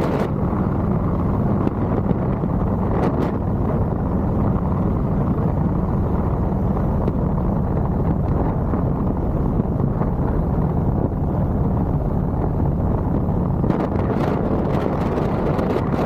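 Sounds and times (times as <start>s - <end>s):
motorcycle engine cruising: 0.0s - 16.0s
wind on microphone: 0.0s - 16.0s.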